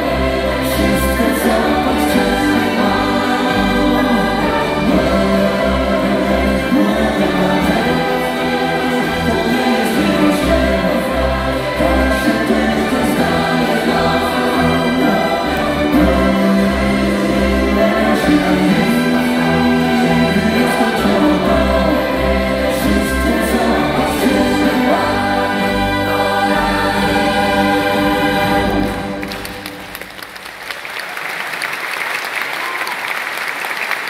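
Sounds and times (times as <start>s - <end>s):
soloists singing with choir: 0.0s - 29.7s
symphony orchestra playing: 0.0s - 30.6s
audience applause: 28.6s - 34.0s.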